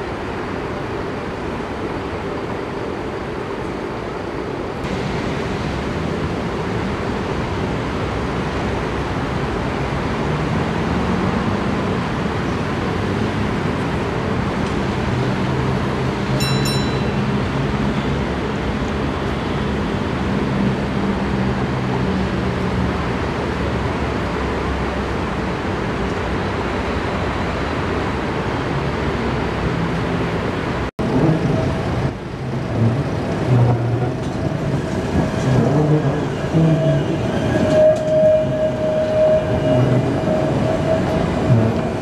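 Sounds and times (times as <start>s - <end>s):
city traffic noise: 0.0s - 42.0s
tram running on track: 0.0s - 42.0s
high-pitched ringing tone: 16.4s - 17.8s.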